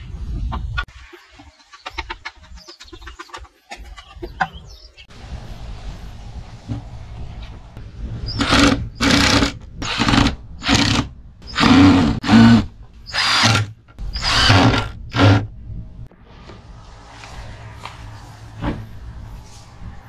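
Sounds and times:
electric power drill bursts: 8.4s - 15.4s.

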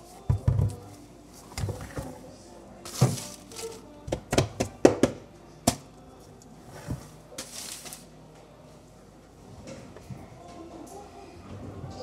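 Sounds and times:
plastic bag rustling: 0.7s - 3.9s, 6.7s - 8.1s.

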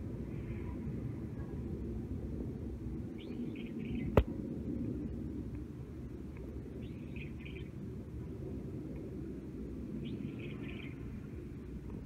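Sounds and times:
jet airliner passing overhead: 0.0s - 12.0s
bird chirping: 3.2s - 4.2s, 6.7s - 7.8s, 10.0s - 11.1s.

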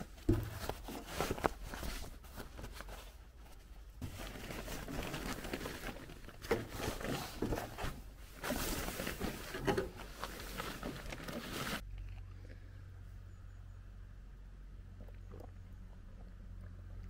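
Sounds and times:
fabric rustling and scraping: 0.0s - 11.8s
handling knocks: 0.2s - 1.1s.

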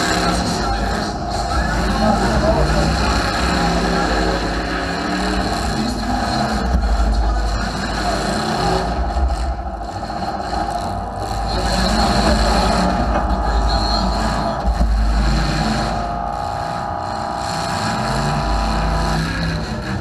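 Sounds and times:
car engines revving: 0.0s - 20.0s.

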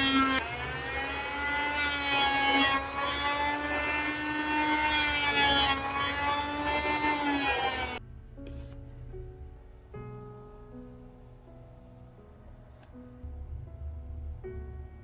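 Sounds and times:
electric planer motor whine: 0.0s - 8.0s
planer blades rasping wood: 0.0s - 8.0s.

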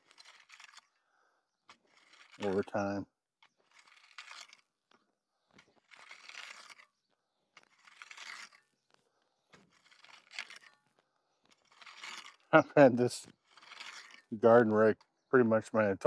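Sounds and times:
rake scraping through gravel: 0.0s - 1.0s, 1.6s - 15.0s.

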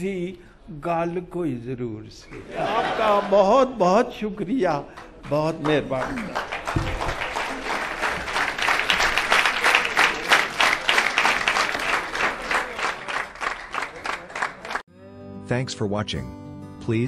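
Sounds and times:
audience applause: 4.9s - 14.8s.

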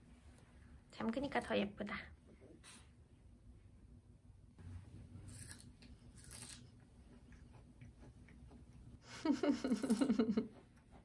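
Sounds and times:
child chewing crunching: 5.0s - 9.0s.

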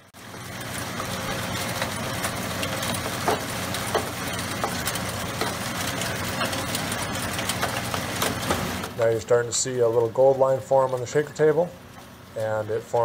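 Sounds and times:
machine drive humming: 0.0s - 13.0s
water spraying and flowing: 0.2s - 9.3s.

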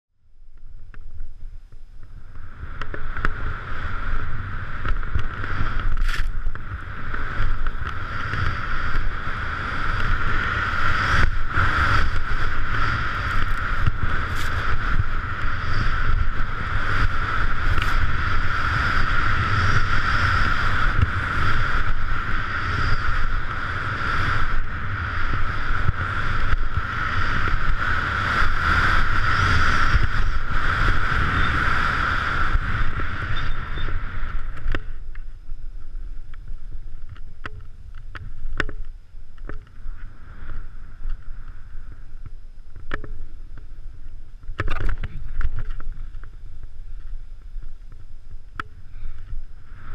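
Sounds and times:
wind buffeting microphone: 0.6s - 49.9s
skis carving through snow: 2.4s - 34.6s
scattered clicks and knocks: 44.5s - 46.3s.

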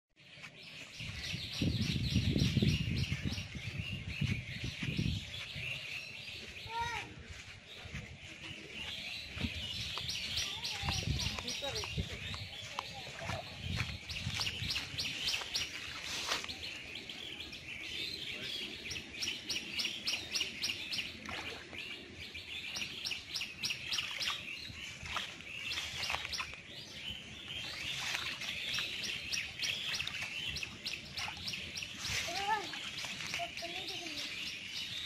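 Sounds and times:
birds chirping: 0.2s - 35.0s.

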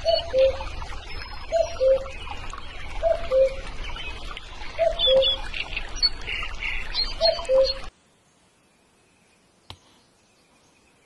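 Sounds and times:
cuckoo calling: 0.0s - 2.3s, 3.0s - 3.7s, 4.8s - 6.4s, 7.0s - 7.9s
small birds chirping: 0.0s - 11.0s.

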